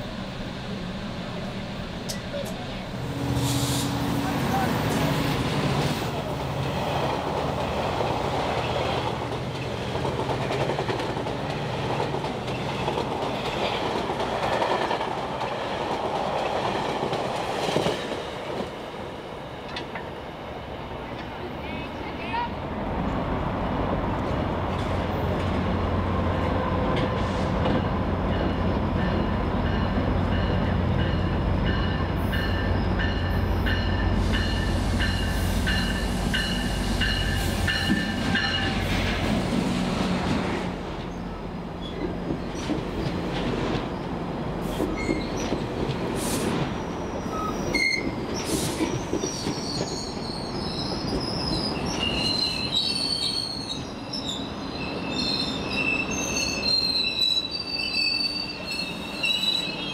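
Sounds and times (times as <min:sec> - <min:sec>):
diesel locomotive engine drone: 0:00.0 - 0:49.3
train wheel squeal: 0:44.7 - 0:45.6, 0:46.4 - 0:59.9.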